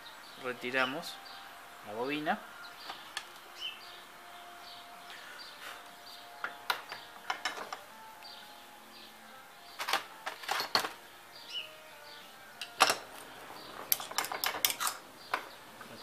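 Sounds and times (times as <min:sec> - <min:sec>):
metal parts clattering: 0:13.8 - 0:15.0
metal tools clinking: 0:13.8 - 0:15.5.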